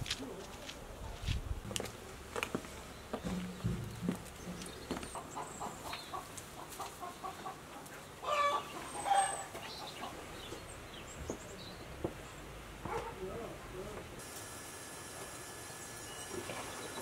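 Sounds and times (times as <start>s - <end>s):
chickens clucking: 3.2s - 10.7s.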